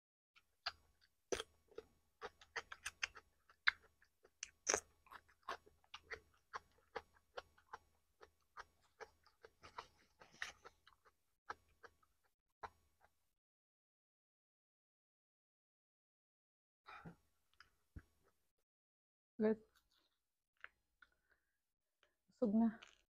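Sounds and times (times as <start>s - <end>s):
person chewing food: 0.4s - 13.2s.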